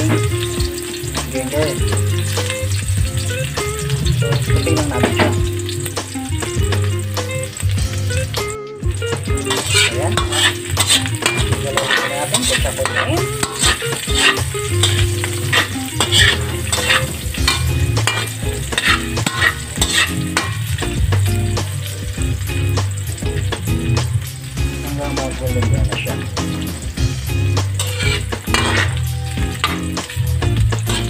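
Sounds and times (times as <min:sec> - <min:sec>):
garlic and onion sizzling in oil: 0:00.0 - 0:31.0
spatula scraping a pan: 0:09.2 - 0:21.0, 0:27.6 - 0:31.0.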